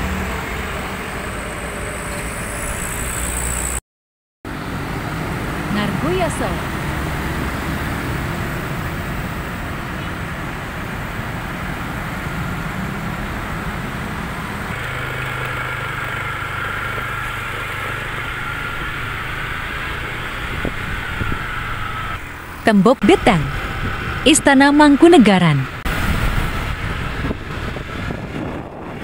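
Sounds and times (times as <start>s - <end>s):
traffic passing: 0.0s - 3.8s, 4.5s - 29.0s
steady higher hum: 14.7s - 25.8s.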